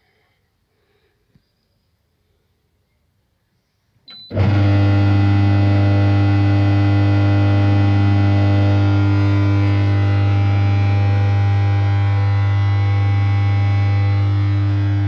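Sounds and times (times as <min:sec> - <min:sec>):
control panel beep: 0:04.1 - 0:04.4
air blower buzzing hum: 0:04.1 - 0:15.0.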